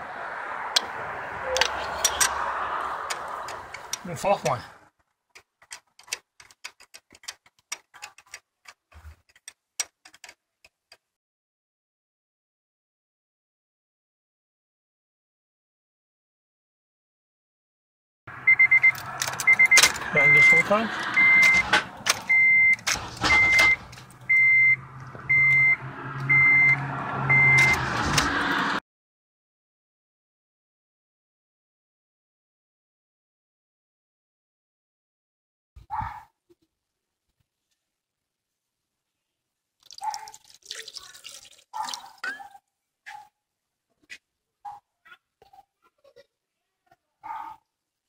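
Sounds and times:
keys rattling in ignition: 5.4s - 10.4s, 18.8s - 24.3s
car warning chime beeping: 18.3s - 27.8s.

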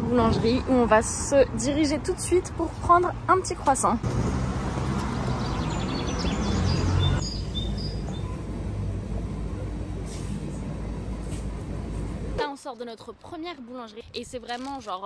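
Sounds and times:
city background rumble: 0.0s - 15.0s
bird chirps: 5.3s - 8.4s.

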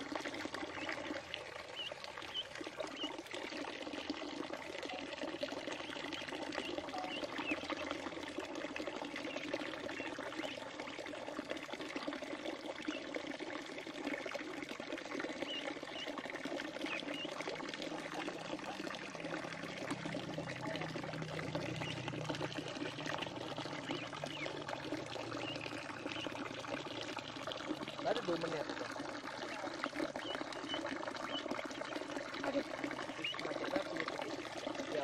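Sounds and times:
ducklings splashing: 0.0s - 35.0s
water pouring into a pool: 0.0s - 35.0s
ducklings peeping: 1.7s - 3.2s, 5.7s - 7.9s, 9.2s - 10.6s, 15.4s - 17.4s, 21.4s - 26.4s, 30.2s - 33.6s.

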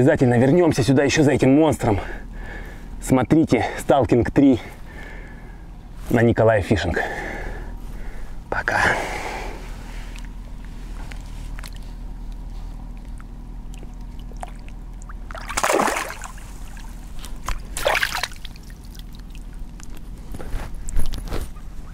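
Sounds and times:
water sloshing: 9.9s - 21.7s
fish splashing in water: 13.0s - 19.6s.

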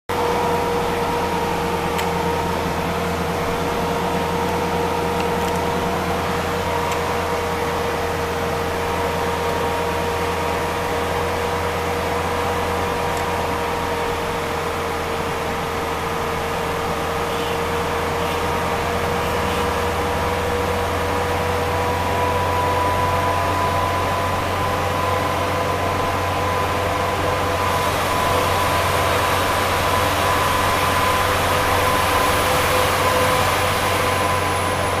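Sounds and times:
car cabin engine and road drone: 0.1s - 35.0s
constant high whine: 0.1s - 35.0s.

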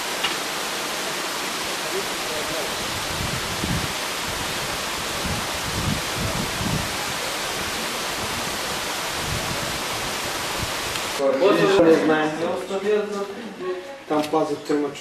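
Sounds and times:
steady rushing hiss: 0.0s - 11.2s.

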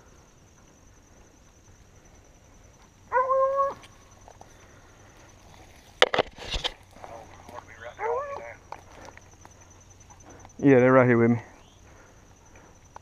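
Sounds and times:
dog whining: 8.0s - 8.4s.

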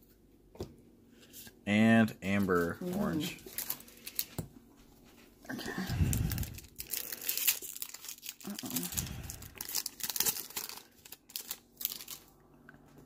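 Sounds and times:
wrapper crinkling and tearing: 2.4s - 4.4s, 5.7s - 12.3s.

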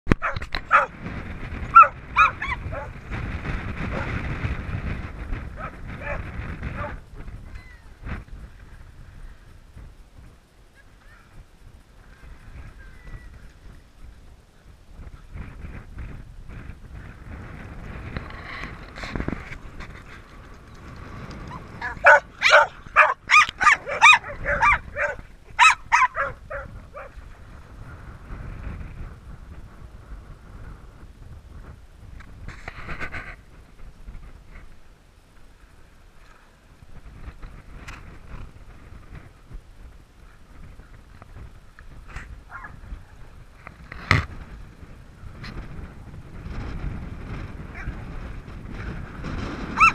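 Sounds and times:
dogs yelping barks: 0.2s - 0.9s, 1.6s - 3.0s, 5.6s - 7.0s, 21.5s - 27.2s.

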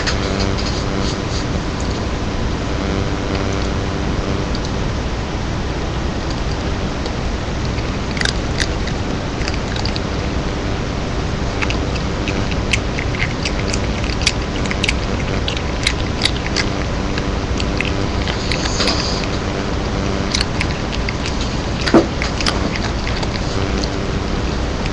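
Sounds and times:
cat crunching chips: 7.6s - 10.5s, 11.4s - 19.5s, 20.2s - 24.9s.

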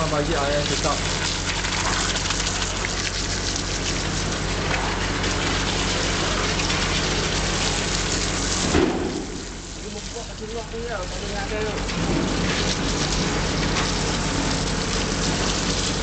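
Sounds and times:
hose water splashing into slurry: 0.0s - 16.0s.

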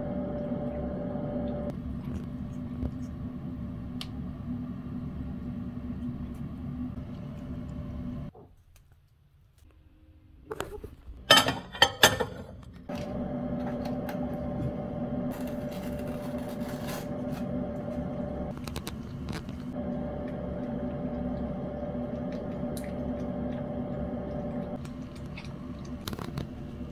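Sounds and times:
electrical appliance hum: 0.0s - 26.9s
cat licking and chewing: 18.5s - 26.9s.

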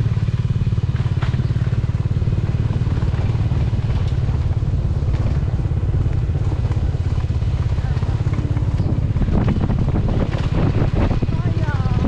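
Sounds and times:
small motorcycle engine running: 0.0s - 12.0s
clicks and rattles of bike: 0.1s - 12.0s.

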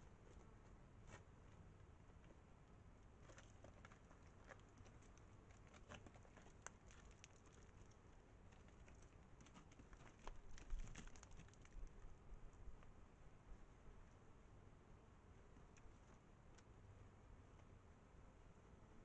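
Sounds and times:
hooves tapping on rock: 3.3s - 12.0s.

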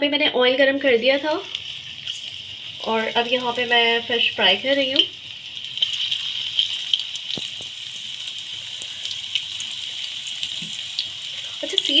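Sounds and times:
fish deep-frying in hot oil: 0.5s - 12.0s.

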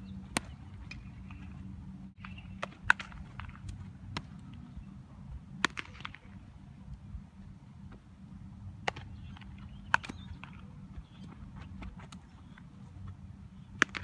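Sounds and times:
low background noise: 0.0s - 14.0s
ball hitting leather gloves: 0.3s - 0.6s, 13.8s - 14.0s.

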